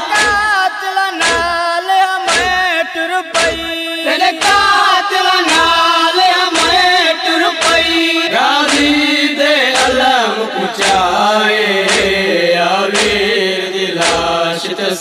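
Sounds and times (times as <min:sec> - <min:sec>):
person chanting a lament: 0:00.0 - 0:15.0
hands striking chest: 0:13.0 - 0:13.2.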